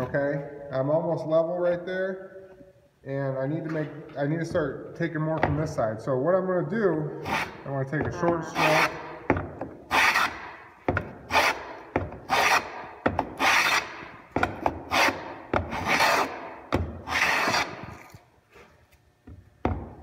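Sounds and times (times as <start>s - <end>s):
hand plane cutting wood: 7.2s - 7.6s, 8.5s - 9.1s, 9.9s - 10.5s, 11.3s - 14.1s, 14.9s - 16.4s, 17.0s - 18.1s.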